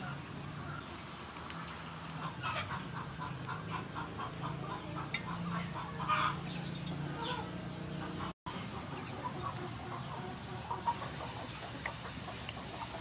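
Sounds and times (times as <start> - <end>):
chickens clucking: 2.1 - 13.0
food frying in hot oil: 10.8 - 13.0.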